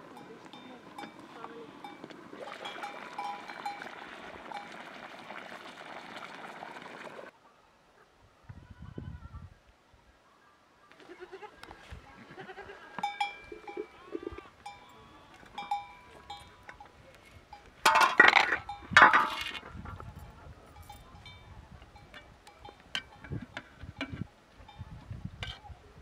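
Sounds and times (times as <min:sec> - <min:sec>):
livestock bleating: 0:11.0 - 0:15.5.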